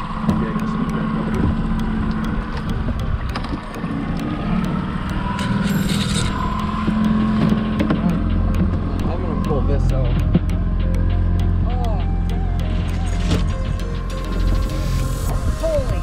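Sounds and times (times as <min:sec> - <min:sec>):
wind and water noise: 0:00.0 - 0:10.6, 0:15.3 - 0:16.0
outboard motor running: 0:00.0 - 0:16.0.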